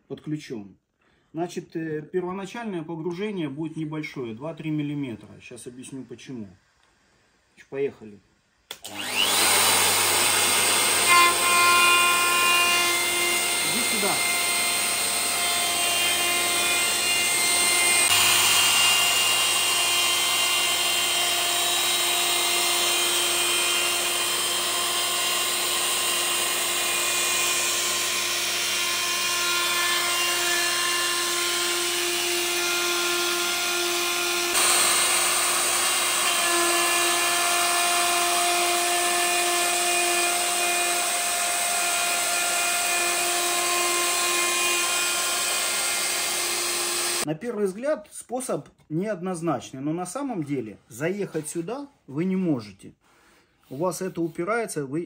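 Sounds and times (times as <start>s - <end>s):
router cutting wood: 8.7s - 47.3s.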